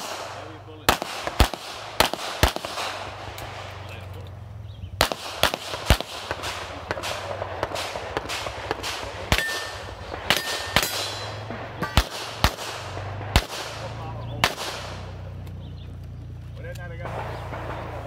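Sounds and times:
handgun shots: 0:05.0 - 0:15.2.

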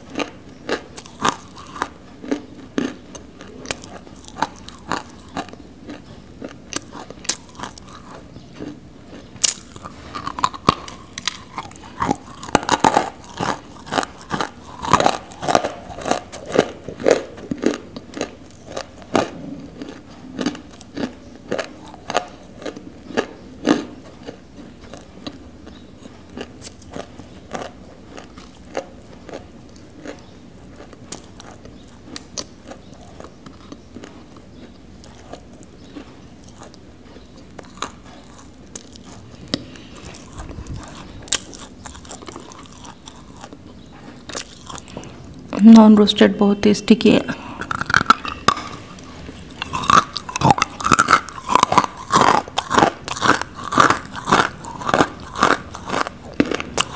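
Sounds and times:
chewing crunchy clay: 0:00.0 - 0:46.1, 0:47.2 - 0:56.9.

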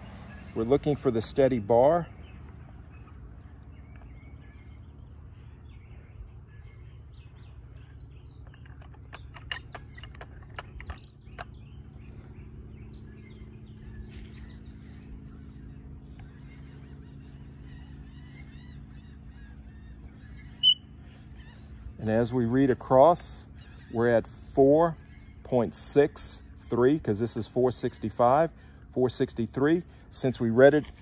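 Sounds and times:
steady low hum: 0:00.0 - 0:31.0
faint bird chirps: 0:02.2 - 0:25.7.

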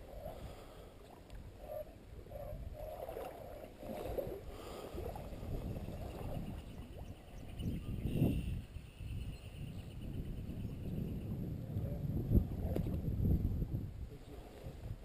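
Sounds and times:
wind rumble on microphone: 0:01.3 - 0:15.0
water sloshing and splashing: 0:02.6 - 0:07.1
microphone handling noise: 0:11.3 - 0:13.7.

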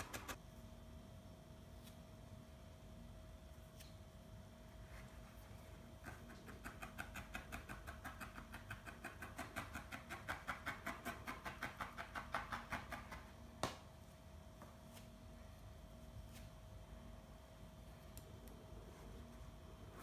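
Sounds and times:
felting needle poking into wool: 0:06.0 - 0:13.3.

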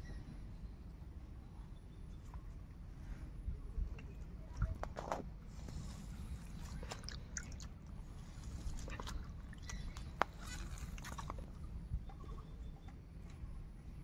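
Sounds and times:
bird calls: 0:09.0 - 0:11.4.

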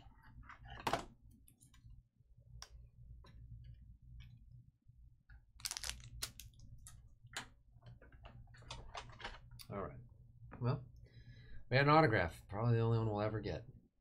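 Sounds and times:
low steady hum: 0:00.0 - 0:13.9.

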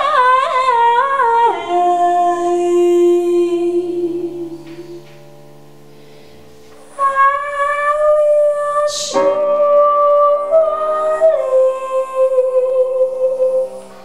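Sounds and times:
woman singing: 0:00.0 - 0:05.1, 0:06.8 - 0:14.0
soft sustained accompaniment: 0:00.0 - 0:14.0
singer breathing: 0:05.9 - 0:06.8.

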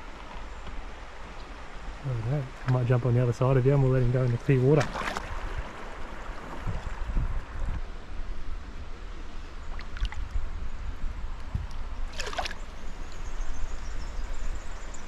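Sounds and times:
river water trickling and lapping: 0:00.0 - 0:15.0
fish splash: 0:04.8 - 0:05.4, 0:12.1 - 0:12.6.

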